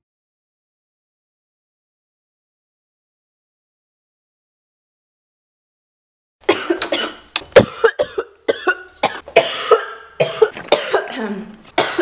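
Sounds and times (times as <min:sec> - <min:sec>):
woman coughing: 0:06.5 - 0:12.0.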